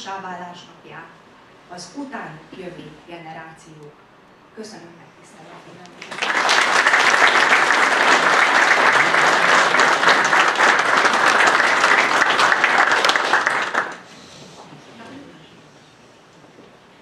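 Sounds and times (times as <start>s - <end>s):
audience applauding: 6.0s - 14.1s.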